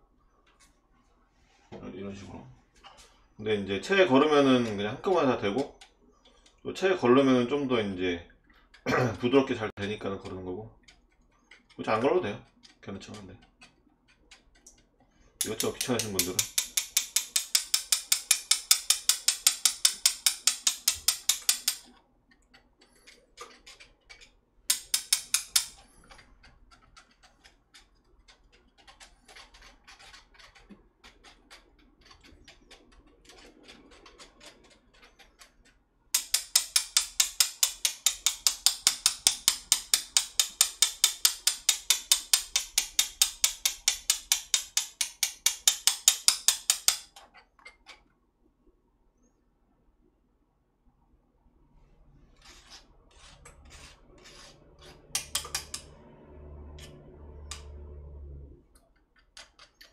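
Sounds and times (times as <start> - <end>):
chopsticks clicking against wire sieve: 10.2 - 47.2, 53.8 - 56.0
chopsticks scraping in sieve: 28.6 - 35.6, 52.1 - 56.1.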